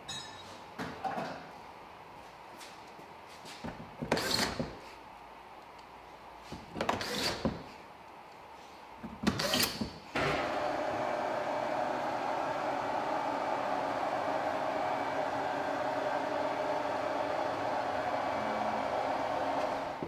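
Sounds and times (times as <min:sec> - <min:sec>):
car lift running: 0:10.2 - 0:20.0.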